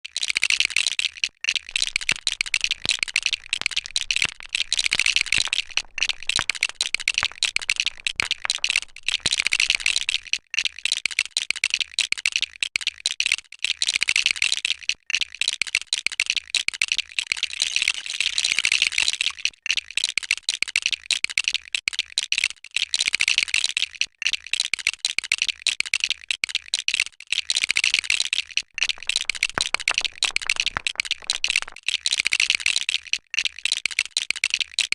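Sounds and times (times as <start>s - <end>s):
plastic bricks clattering and clicking: 1.6s - 10.3s, 28.8s - 31.9s.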